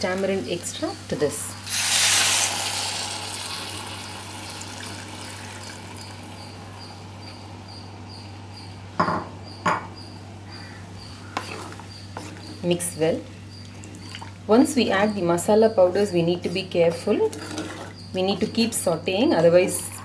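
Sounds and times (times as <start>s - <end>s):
liquid sizzling in hot pot: 1.6s - 6.4s.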